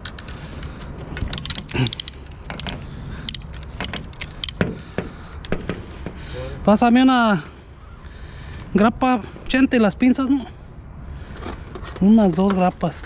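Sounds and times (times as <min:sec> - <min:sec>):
steel strapping band rattling: 0:00.0 - 0:04.9.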